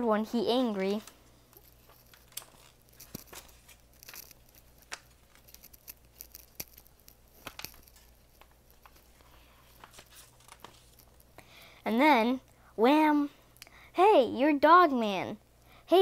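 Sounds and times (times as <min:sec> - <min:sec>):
paper pages flipping: 0:00.7 - 0:11.3.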